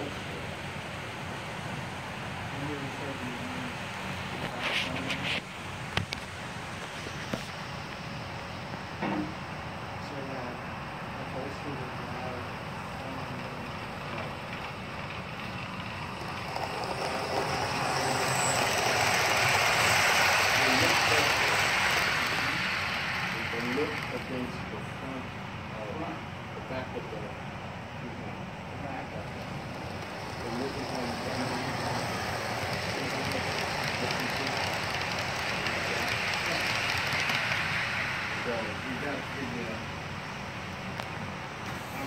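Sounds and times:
model train wheels rolling on rails: 11.2s - 26.1s, 28.7s - 42.0s.

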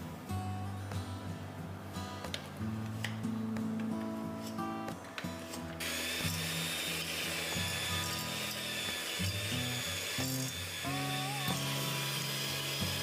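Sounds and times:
electric hand mixer running: 5.8s - 13.0s.

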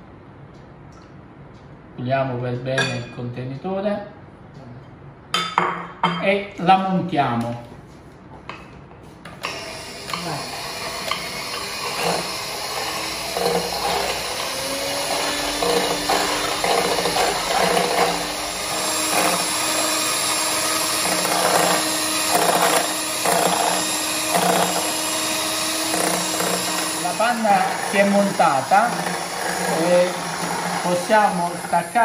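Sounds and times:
electric hand mixer whipping cream: 9.4s - 32.0s.

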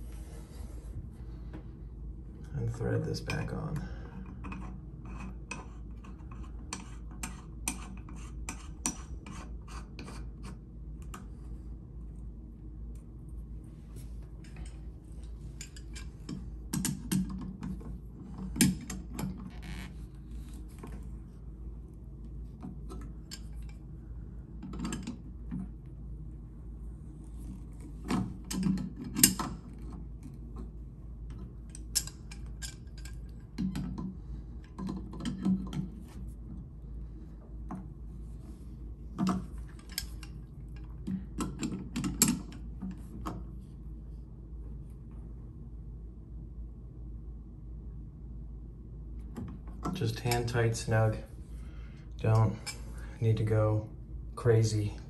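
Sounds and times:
metal nut clicking and scraping: 4.2s - 11.3s, 15.5s - 20.8s.

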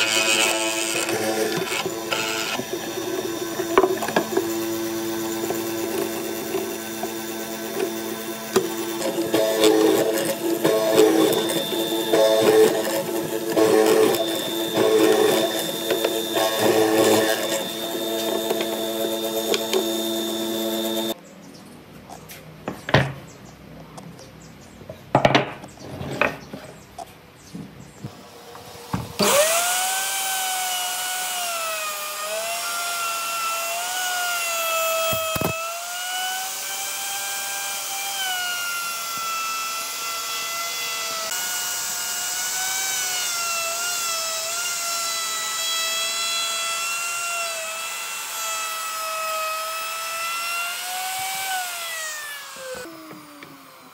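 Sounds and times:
machine drone: 0.0s - 21.2s
power tool motor whining: 0.0s - 21.2s, 28.1s - 53.9s.

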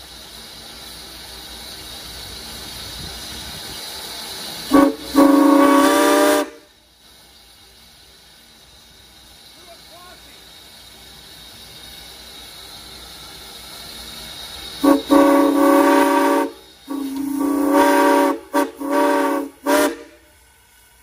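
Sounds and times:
steam hissing: 0.0s - 21.0s
steam whistle blasts: 4.7s - 6.7s, 14.8s - 20.4s.

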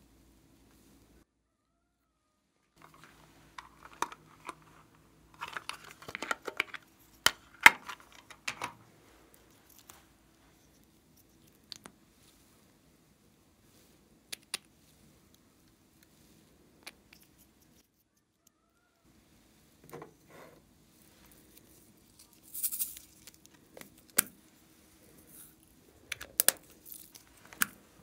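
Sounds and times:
faint steady hum: 0.0s - 28.0s
plastic bottle clicks and rustles: 2.8s - 8.8s.

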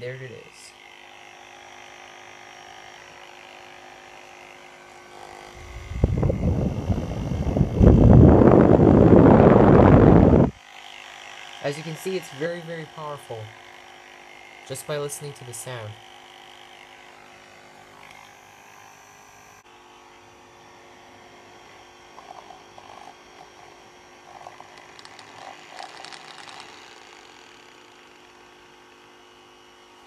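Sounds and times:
fan motor whining: 4.9s - 10.6s, 21.2s - 30.0s
uneven flutters and clicks: 22.2s - 28.6s.

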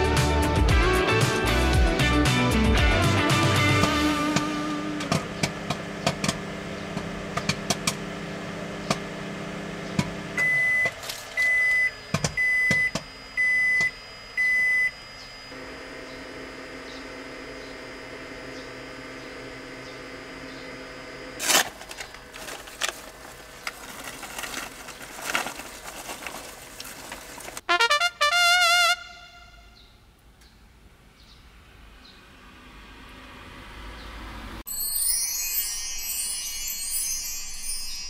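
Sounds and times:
microwave oven humming: 2.6s - 27.7s
bag rustling and crackling: 21.4s - 27.6s.

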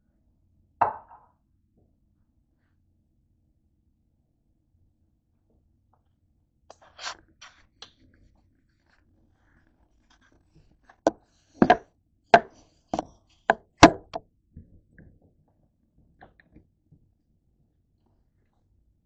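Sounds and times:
hard objects knocking: 11.0s - 11.8s, 12.4s - 14.2s.

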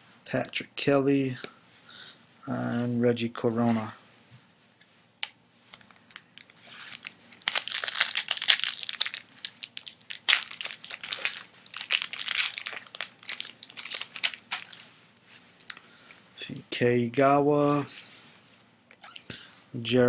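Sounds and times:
foil wrapper crinkling and tearing: 6.4s - 14.9s.

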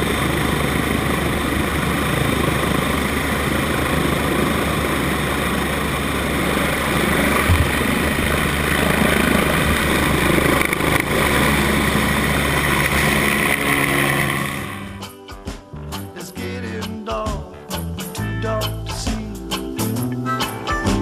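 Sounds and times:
helicopter turbine and rotor noise: 0.0s - 15.5s.

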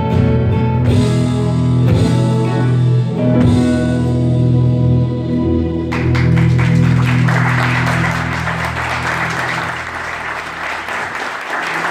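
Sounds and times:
guitars and bass closing chord: 0.0s - 10.6s
audience applause: 5.9s - 11.9s.

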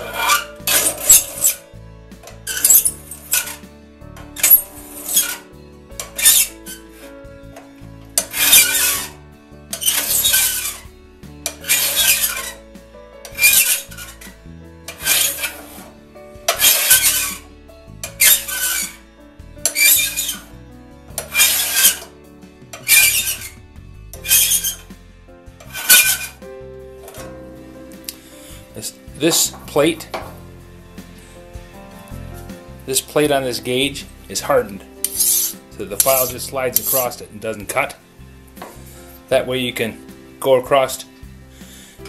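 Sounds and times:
file rasping on saw tooth: 0.0s - 1.6s, 6.1s - 7.0s, 8.2s - 9.2s, 9.8s - 10.8s, 11.5s - 12.6s, 13.3s - 14.3s, 14.9s - 15.9s, 16.5s - 17.4s, 18.2s - 19.0s, 19.7s - 20.5s, 21.2s - 22.1s, 22.8s - 23.6s, 24.2s - 24.9s, 25.6s - 26.4s, 35.1s - 37.2s.

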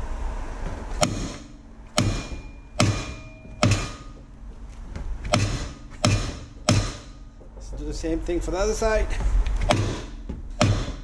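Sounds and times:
hammer striking metal rotor: 1.0s - 4.2s, 5.2s - 7.3s.

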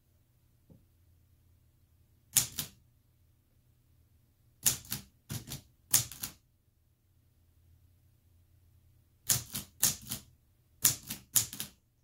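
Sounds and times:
typewriter keys clacking: 4.6s - 6.4s, 9.3s - 11.8s.

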